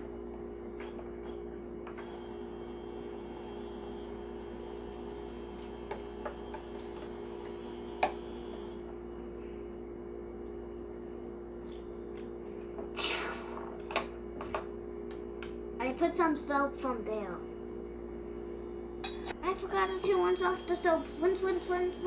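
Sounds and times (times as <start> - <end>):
toy faucet running water: 2.9 - 8.9.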